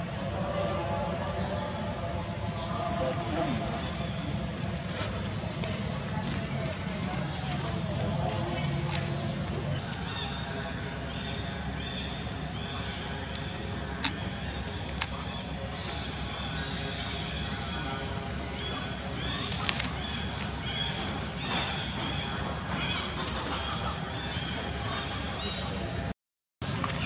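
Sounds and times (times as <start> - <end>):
insects droning: 0.0 - 27.0
sharp clicks: 14.0 - 14.3.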